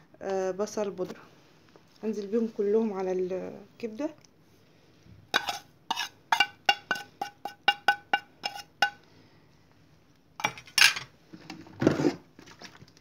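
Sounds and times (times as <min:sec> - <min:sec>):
ceramic dish clinking: 0:05.4 - 0:09.0, 0:10.4 - 0:11.1.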